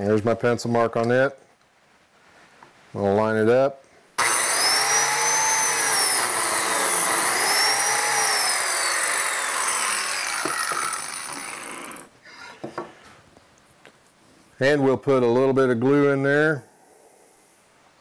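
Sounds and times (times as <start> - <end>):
biscuit joiner whining: 4.2 - 12.1.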